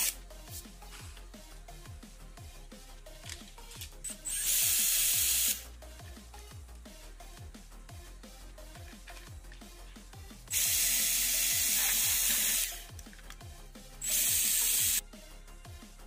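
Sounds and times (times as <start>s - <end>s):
background music with steady beat: 0.0s - 16.0s
cordless drill boring through plastic: 4.2s - 5.6s, 10.5s - 12.8s, 14.0s - 15.0s.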